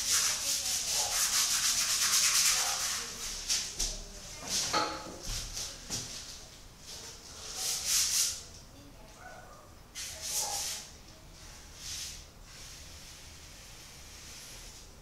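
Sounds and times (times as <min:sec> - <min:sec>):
paintbrush swishing: 0:00.0 - 0:03.8, 0:10.0 - 0:14.8.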